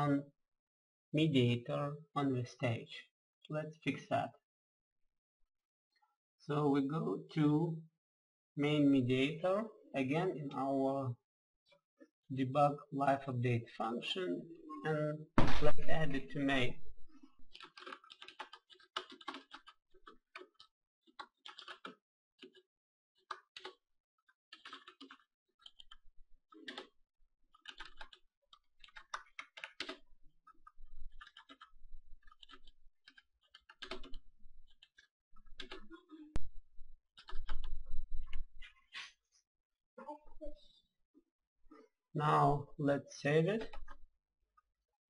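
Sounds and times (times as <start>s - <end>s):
keyboard typing clicks: 32.3s - 35.9s, 37.2s - 38.4s.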